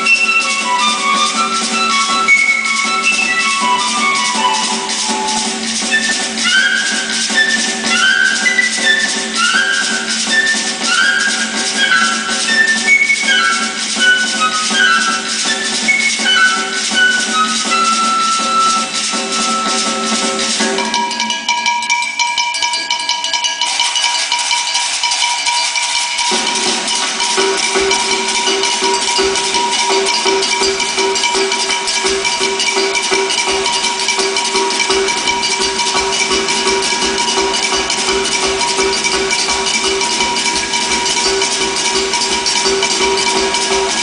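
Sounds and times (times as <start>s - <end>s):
fast percussion pattern: 0.0s - 44.0s
repeated melodic phrase: 26.3s - 44.0s.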